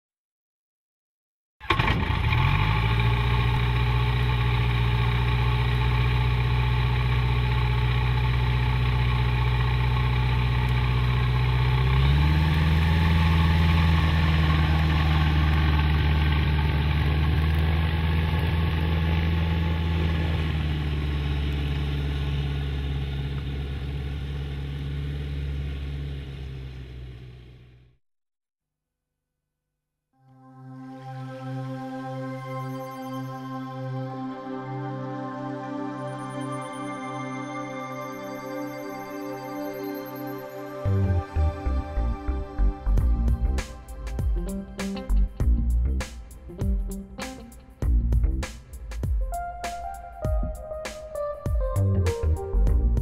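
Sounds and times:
light aircraft engine and propeller: 1.7 - 27.6.

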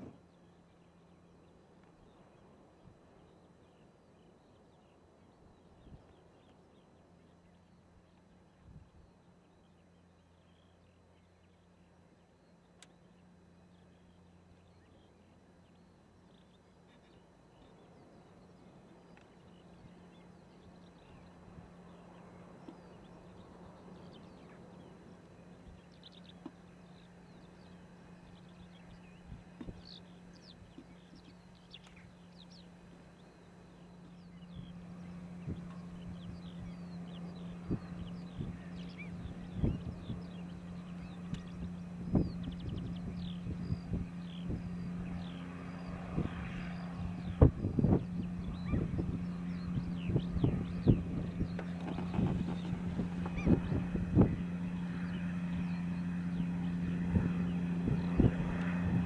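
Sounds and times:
gulls calling: 16.3 - 59.0
tractor engine humming: 17.7 - 59.0.

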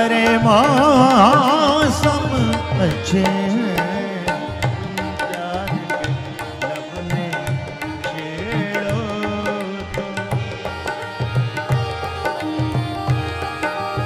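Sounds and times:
sarangi and harmonium melody: 0.0 - 14.0
tabla rhythm: 0.0 - 14.0.

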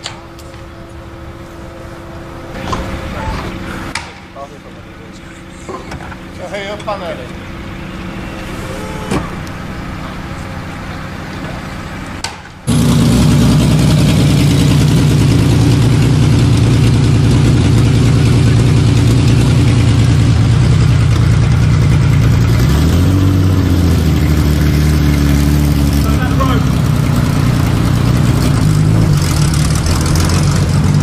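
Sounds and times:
car engine running loud: 0.0 - 31.0.

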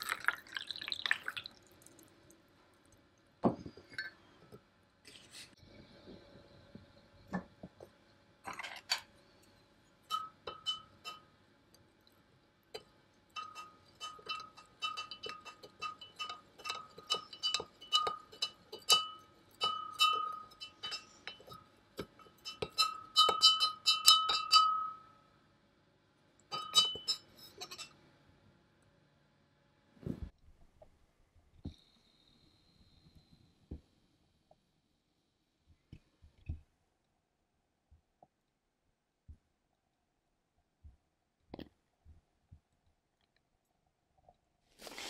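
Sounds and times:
spoon clinking in a glass beaker: 10.1 - 11.3, 13.4 - 25.1, 26.5 - 28.0.

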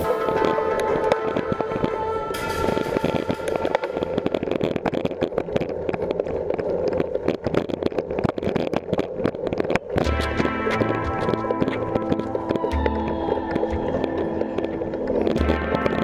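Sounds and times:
bike rattling: 2.3 - 16.0
bike tyres rumbling on concrete: 2.6 - 16.0
music with steady beat: 10.0 - 16.0.

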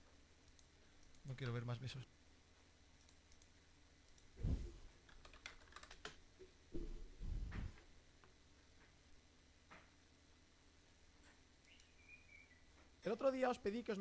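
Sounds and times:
dull low thumps: 4.4 - 4.8, 6.8 - 7.8.

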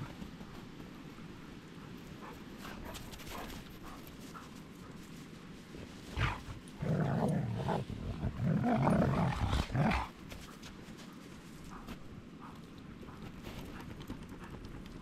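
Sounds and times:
dog growling: 6.2 - 10.2.

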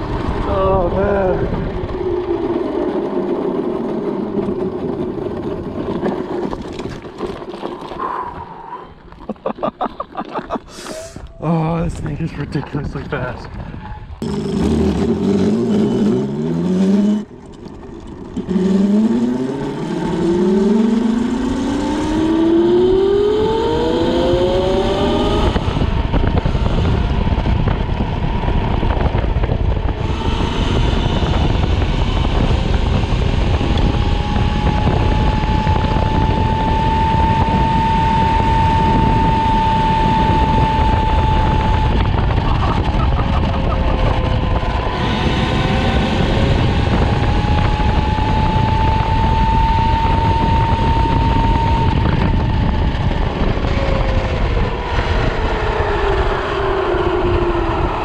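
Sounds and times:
wind noise: 0.0 - 58.0
electric motor whining: 18.7 - 58.0.

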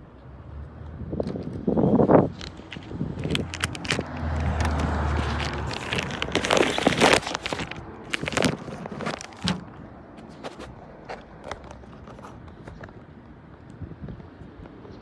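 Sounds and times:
plastic clicks and scraping: 1.2 - 13.0.

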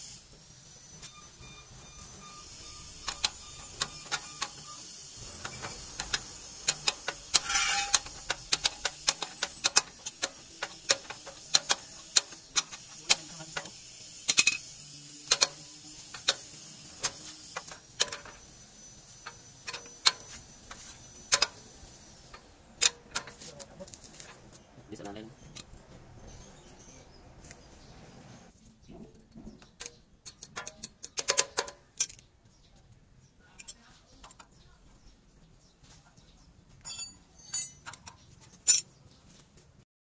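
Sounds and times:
hand ratchet clicking: 2.9 - 18.5, 19.2 - 21.6, 22.3 - 23.8, 29.7 - 32.2.

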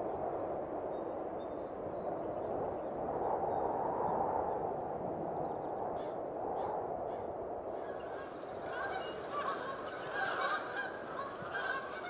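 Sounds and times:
geese honking: 7.9 - 12.0.

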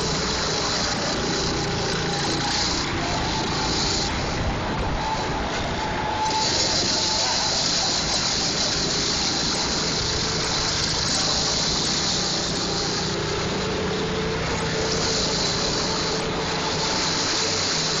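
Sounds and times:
go-kart engines droning: 0.0 - 18.0
rushing noise: 0.0 - 18.0.

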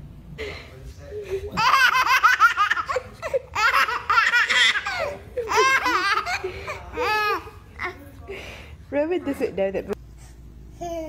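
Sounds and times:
baby laughing: 1.5 - 8.0.

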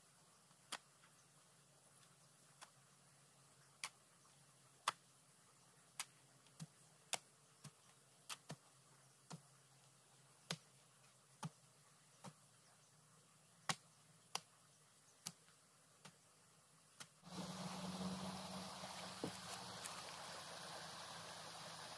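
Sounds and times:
steady rushing noise: 17.3 - 21.9.

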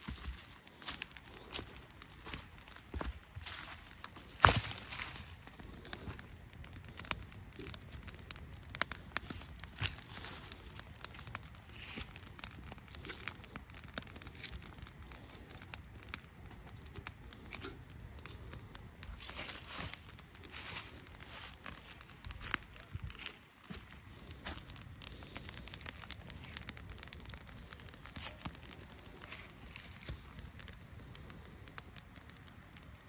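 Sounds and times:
wood and dry leaves crunching: 0.0 - 6.3, 9.0 - 15.2, 18.5 - 30.4
campfire wood snapping and crackling: 0.0 - 33.0.

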